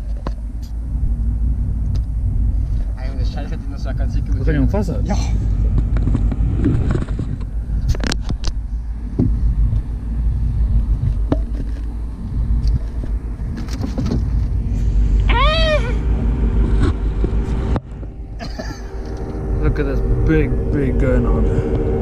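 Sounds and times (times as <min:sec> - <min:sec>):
wind and water rumble: 0:00.0 - 0:22.0
call rising and falling: 0:14.9 - 0:22.0.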